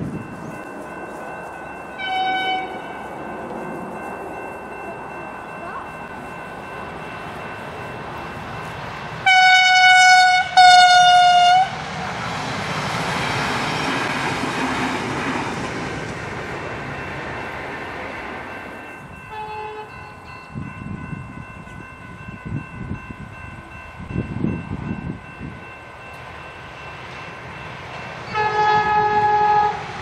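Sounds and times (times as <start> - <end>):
train running past: 0.0 - 30.0
train horn blasts: 2.0 - 2.9, 9.2 - 11.8, 19.3 - 20.2, 28.3 - 29.9.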